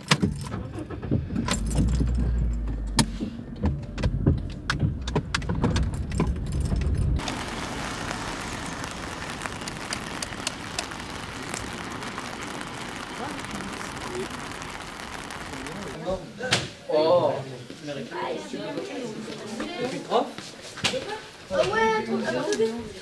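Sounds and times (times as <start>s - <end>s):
clicks and rattles in car: 0.0s - 7.2s
car engine and road rumble: 0.0s - 16.0s
rain hiss: 7.2s - 16.3s.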